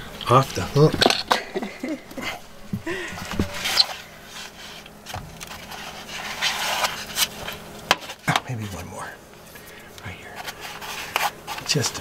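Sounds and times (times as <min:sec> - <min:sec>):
clothing rustling and scraping: 0:03.2 - 0:08.8.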